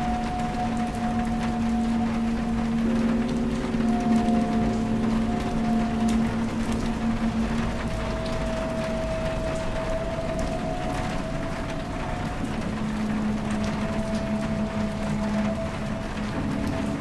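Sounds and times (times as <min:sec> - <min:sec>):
high drone tone: 0:00.0 - 0:17.0
low drone tone: 0:00.0 - 0:17.0
rain-like hiss: 0:00.0 - 0:17.0.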